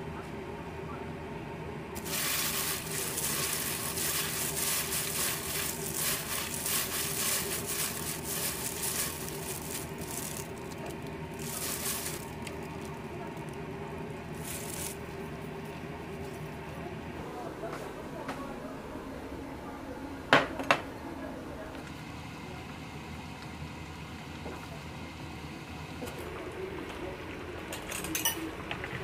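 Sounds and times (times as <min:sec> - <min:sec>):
stirring and scraping pan: 0:02.0 - 0:10.4
food sizzling in a pan: 0:02.0 - 0:10.6.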